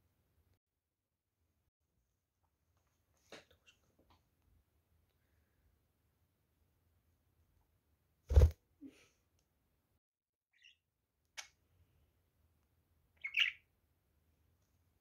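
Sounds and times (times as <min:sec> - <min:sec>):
budgerigar chirping: 0:13.2 - 0:13.6.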